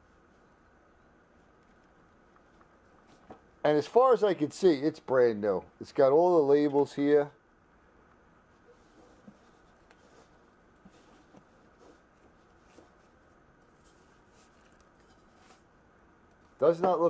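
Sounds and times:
fabric rustling: 0:08.4 - 0:16.6.

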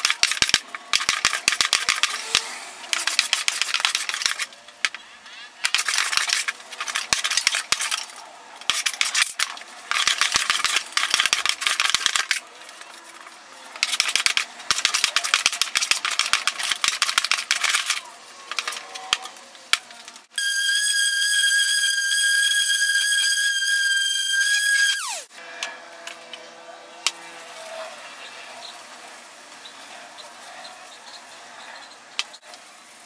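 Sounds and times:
orbital sander whining: 0:20.4 - 0:25.3.

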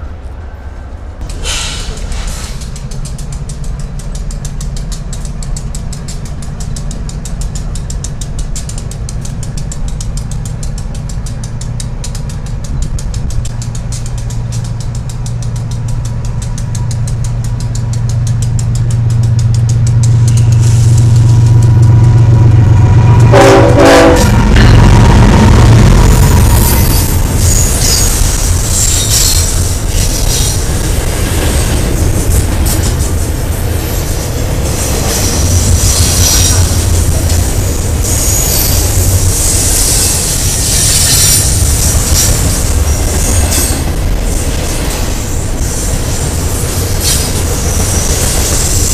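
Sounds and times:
locomotive engines droning: 0:00.0 - 0:48.9
train horn blast: 0:22.4 - 0:25.8.

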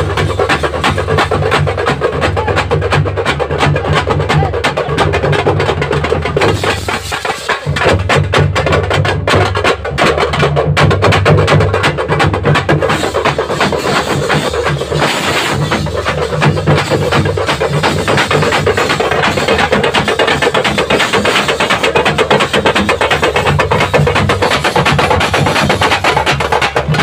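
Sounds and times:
frame drums beaten with sticks: 0:00.0 - 0:27.0.

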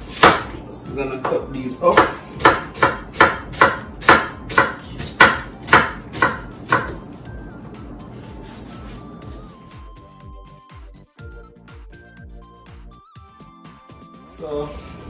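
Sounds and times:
knife chopping on wooden board: 0:00.1 - 0:00.6, 0:01.2 - 0:07.1.

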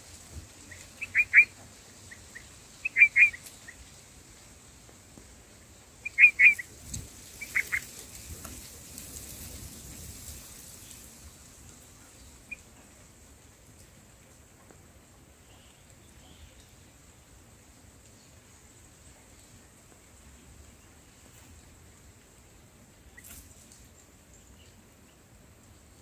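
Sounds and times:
bird chirping: 0:00.6 - 0:03.8, 0:06.0 - 0:06.7, 0:07.4 - 0:07.9.

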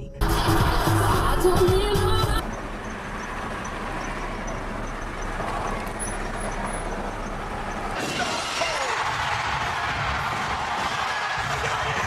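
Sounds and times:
car cabin road noise: 0:00.0 - 0:09.6.

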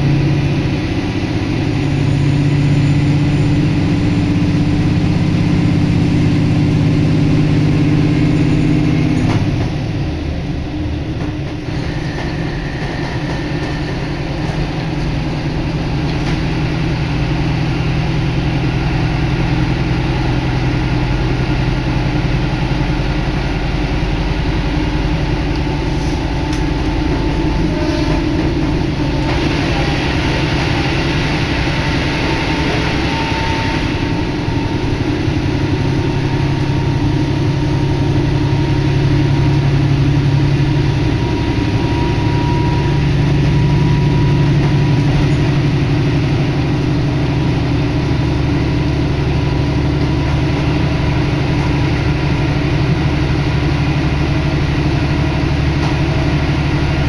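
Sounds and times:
rail running noise: 0:00.0 - 0:57.0
railcar engine drone: 0:00.0 - 0:57.0
air rushing through window: 0:24.1 - 0:35.8.

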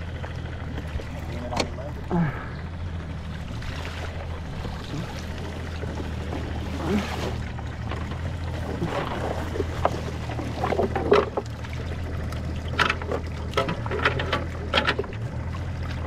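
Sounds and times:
boat engine idling: 0:00.0 - 0:16.0.

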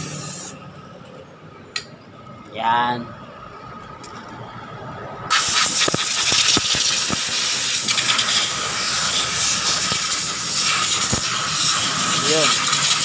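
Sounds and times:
loud steady hiss: 0:00.0 - 0:00.6, 0:05.3 - 0:13.0.

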